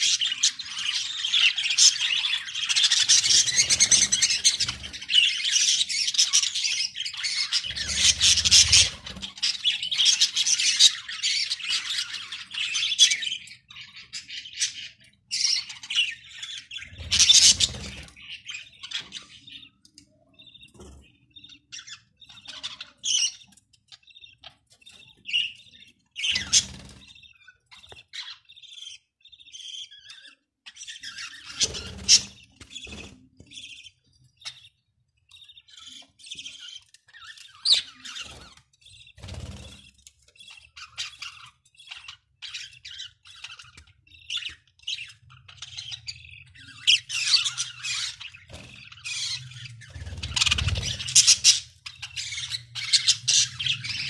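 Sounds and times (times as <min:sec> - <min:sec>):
budgerigars chattering and chirping: 0:00.0 - 0:54.0
wings fluttering: 0:48.4 - 0:51.4.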